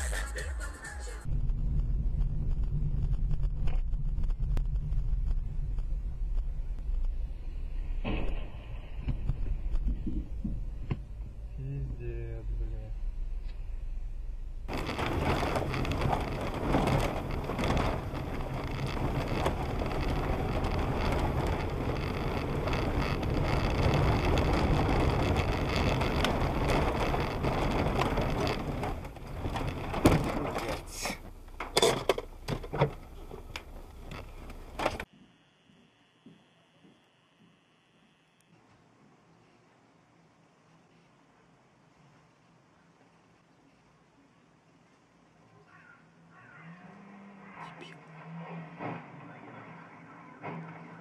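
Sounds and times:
car road and engine noise: 1.2s - 35.1s, 45.1s - 51.0s.

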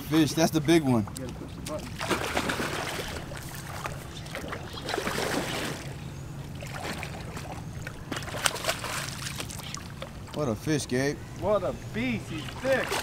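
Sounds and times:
fish thrashing and splashing: 1.8s - 5.9s, 6.5s - 10.3s, 12.4s - 13.0s.

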